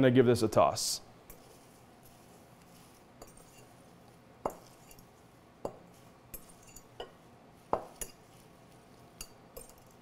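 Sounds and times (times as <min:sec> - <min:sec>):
utensil clinking on glass bowl: 0:03.2 - 0:03.8, 0:04.4 - 0:10.0.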